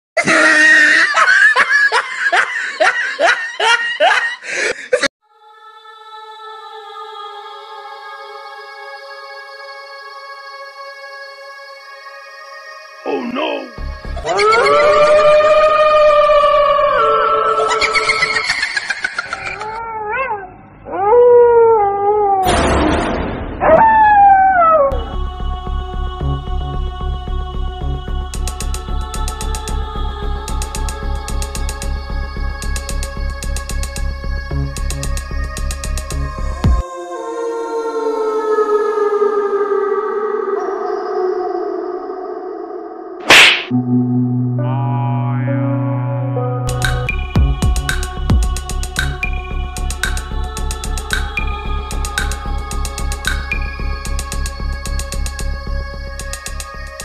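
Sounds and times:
loud laughter: 0:00.2 - 0:05.1, 0:17.5 - 0:19.8
dog howling: 0:14.2 - 0:18.2, 0:19.6 - 0:22.5, 0:23.6 - 0:25.2
background music with steady beat: 0:25.1 - 0:36.8, 0:46.7 - 0:57.0
electronic music chord: 0:43.7 - 0:47.9.

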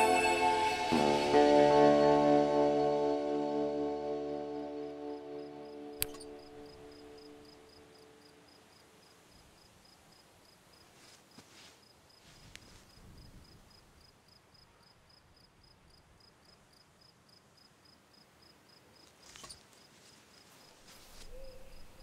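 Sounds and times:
cricket chirping: 0:05.2 - 0:22.0
soft rustles and clicks: 0:10.8 - 0:13.4, 0:19.0 - 0:22.0.

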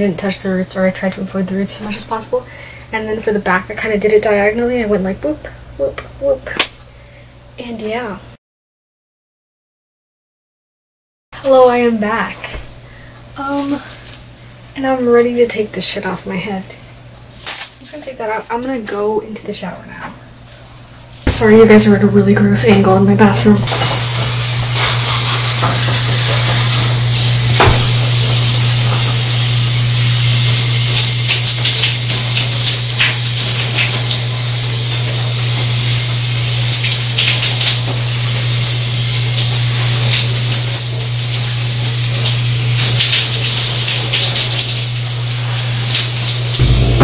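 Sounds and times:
shower spraying water: 0:23.7 - 0:47.0
low hum: 0:46.6 - 0:47.0.

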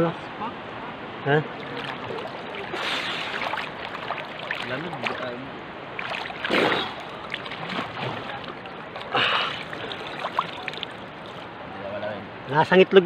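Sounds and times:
loud water splashes: 0:01.3 - 0:11.6
seawater sloshing and splashing: 0:01.4 - 0:11.6.

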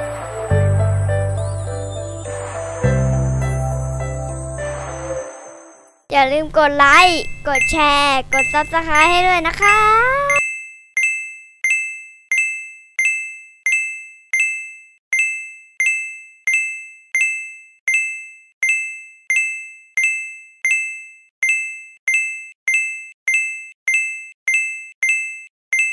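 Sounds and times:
electronic two-tone ding: 0:07.3 - 0:09.2, 0:10.3 - 0:25.9.

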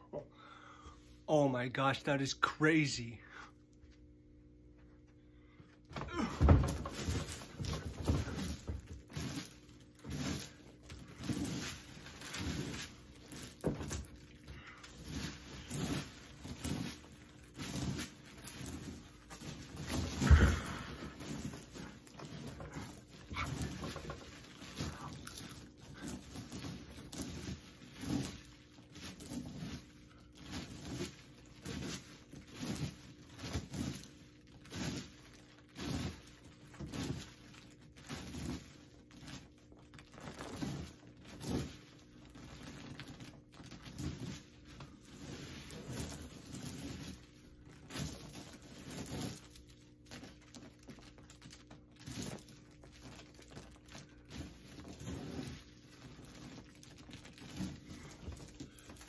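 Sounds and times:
popcorn rustling and crunching: 0:05.9 - 0:59.0.

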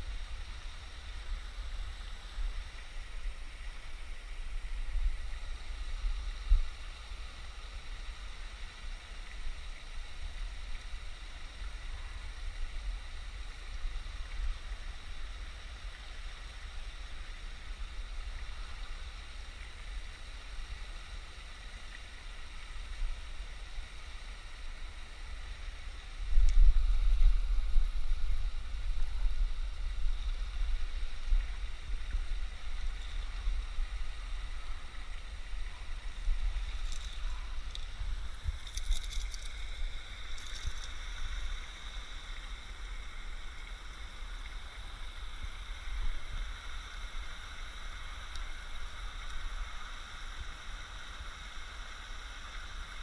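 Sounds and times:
running water hiss: 0:00.0 - 0:53.0
wind rumbling on microphone: 0:22.4 - 0:53.0.

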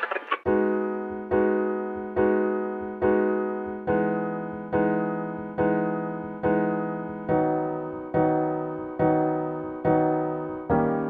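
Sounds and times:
piano chords struck slowly: 0:00.5 - 0:11.0.

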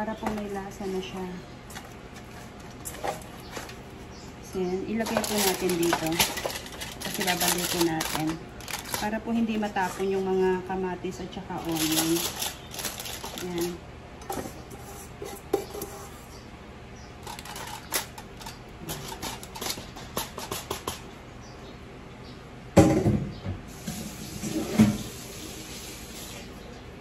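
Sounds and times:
aluminium foil crinkling: 0:00.1 - 0:04.0, 0:04.8 - 0:10.8, 0:11.4 - 0:13.8, 0:17.2 - 0:21.0.

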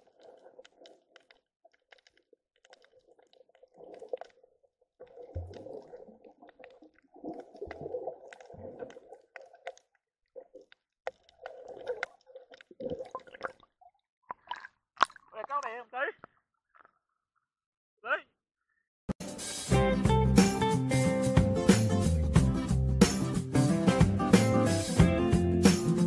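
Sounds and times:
underwater rumbling and sloshing: 0:00.0 - 0:15.6.

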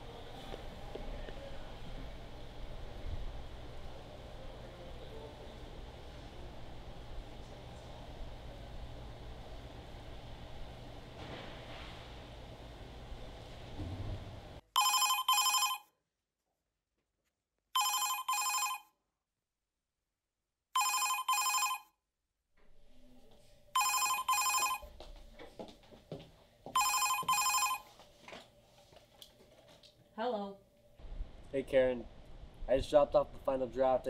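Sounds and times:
low outdoor hum: 0:00.0 - 0:15.0, 0:22.6 - 0:34.0
office telephone ringing: 0:14.8 - 0:15.9, 0:17.8 - 0:18.9, 0:20.8 - 0:21.9, 0:23.8 - 0:24.9, 0:26.8 - 0:27.9.

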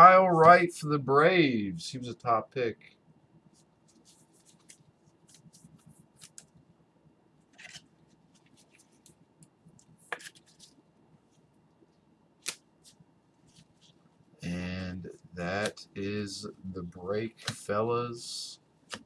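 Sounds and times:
trading cards clicking and rustling: 0:04.0 - 0:06.6, 0:07.5 - 0:09.2, 0:09.8 - 0:10.8, 0:17.4 - 0:17.8.

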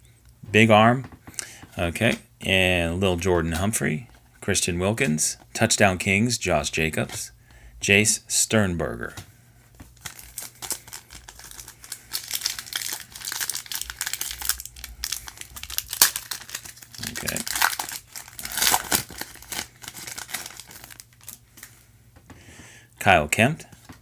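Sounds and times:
foil wrapper crinkling and tearing: 0:10.0 - 0:21.7.

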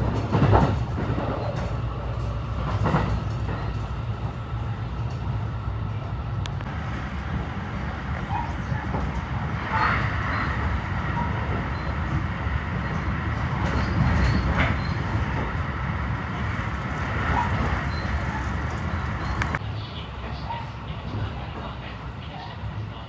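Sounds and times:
electric train rumbling: 0:00.0 - 0:23.0.

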